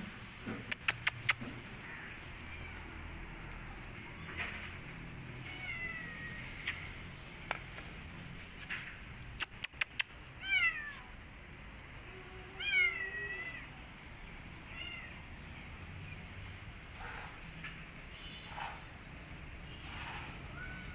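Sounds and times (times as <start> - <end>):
sharp clicks: 0.6 - 1.6, 9.3 - 10.3.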